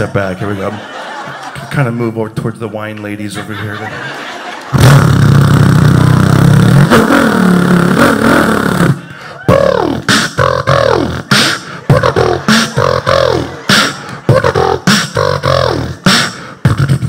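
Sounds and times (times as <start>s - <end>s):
man beatboxing motorcycle revs: 4.8s - 17.0s.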